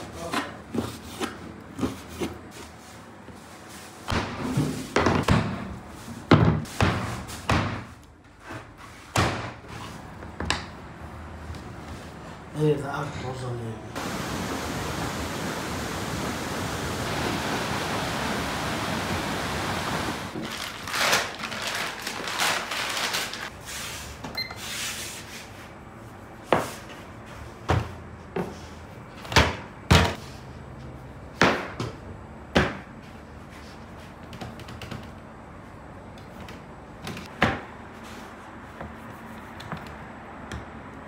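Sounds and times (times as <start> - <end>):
steady hiss: 14.0 - 20.3.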